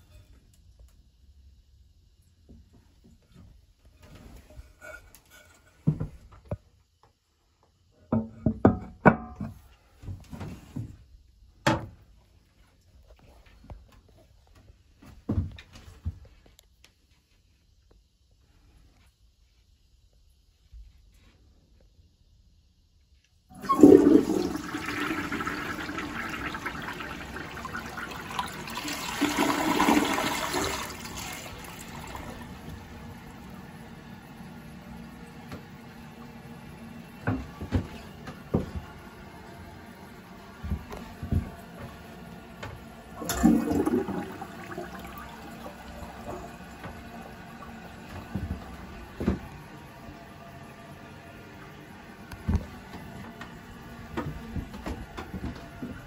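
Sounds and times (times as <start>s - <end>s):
toilet flushing: 23.5s - 56.0s
water running: 23.5s - 56.0s.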